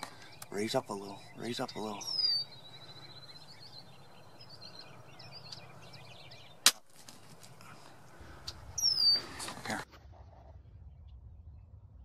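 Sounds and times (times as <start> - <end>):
songbird whistle and trill: 1.2 - 6.6, 8.8 - 9.4.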